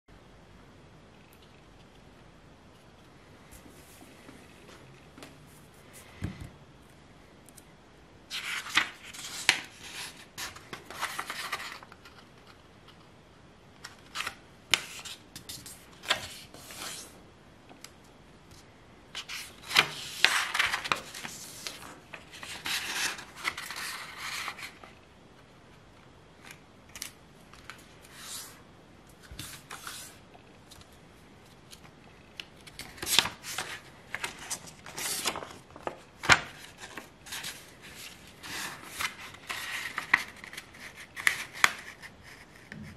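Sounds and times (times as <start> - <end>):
paper rustling and crackling: 8.3 - 12.6, 19.2 - 25.0, 31.6 - 42.8.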